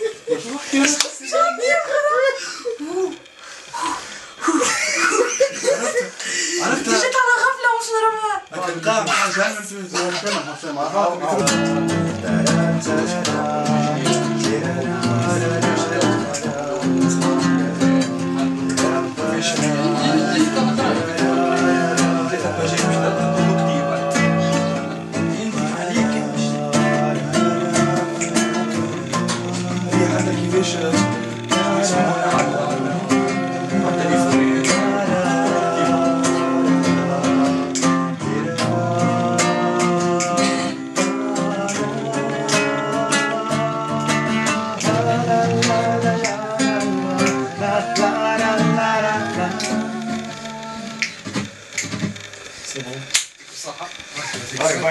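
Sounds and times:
classical guitar fingerstyle: 0:11.2 - 0:52.2.

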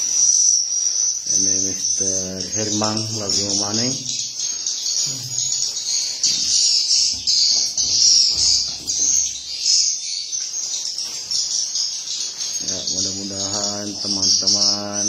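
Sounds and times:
swiftlets chirping and twittering: 0:00.0 - 0:15.0.

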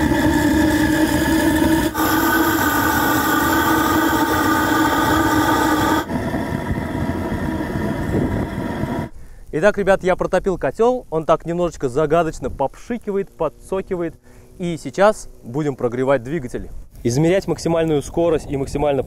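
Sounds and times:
burner humming: 0:00.0 - 0:09.2
burner hiss: 0:00.0 - 0:10.0.

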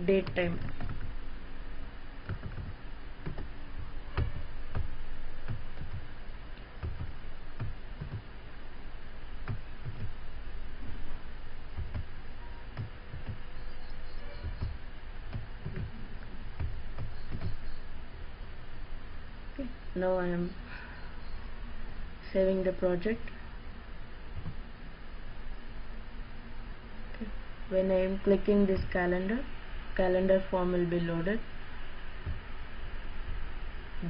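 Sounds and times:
steady background hiss: 0:00.0 - 0:34.0
keyboard typing: 0:00.2 - 0:01.1, 0:02.2 - 0:03.5, 0:04.2 - 0:06.1, 0:14.2 - 0:16.0, 0:16.6 - 0:17.7.

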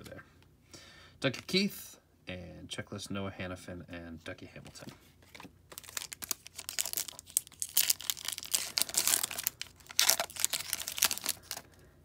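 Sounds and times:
foil wrapper tearing and crinkling: 0:05.7 - 0:11.7.

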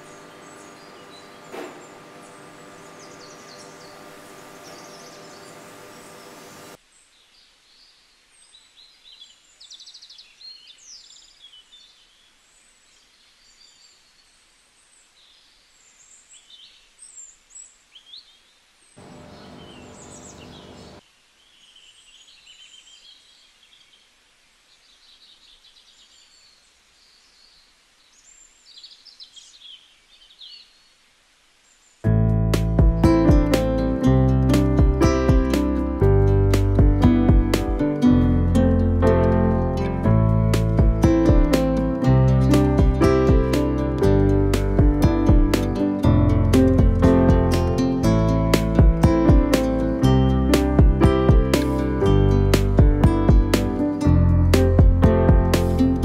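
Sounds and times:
birds chirping and trilling: 0:00.0 - 0:32.1
steady hum with hiss: 0:00.0 - 0:56.0.

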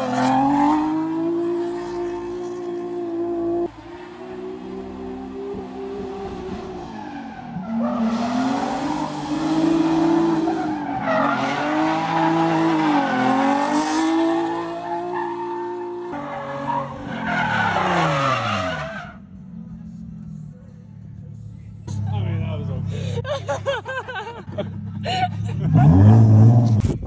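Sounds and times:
tyres squealing and skidding: 0:00.0 - 0:19.5
car engine revving high: 0:07.7 - 0:16.2.

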